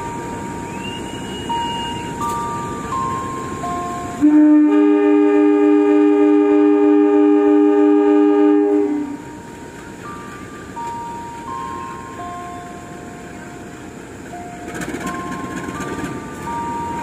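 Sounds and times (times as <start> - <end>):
locomotive air horn blast: 4.1 - 9.3.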